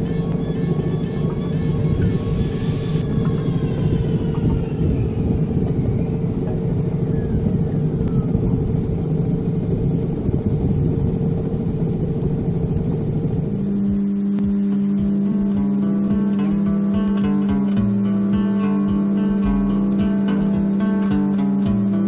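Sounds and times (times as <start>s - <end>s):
acoustic guitar music: 0.0s - 3.6s, 13.5s - 22.0s
water noise: 0.0s - 15.6s
outboard motor droning: 0.0s - 22.0s
wind: 0.0s - 22.0s.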